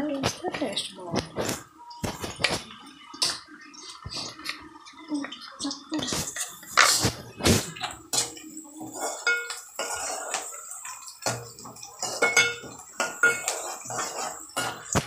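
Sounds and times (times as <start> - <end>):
metal utensil clanking on pan: 7.8 - 15.0.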